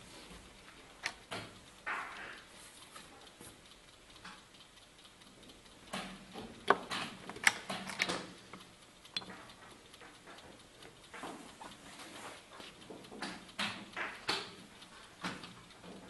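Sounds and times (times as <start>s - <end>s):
chess clock buttons clicking: 4.0s - 11.6s.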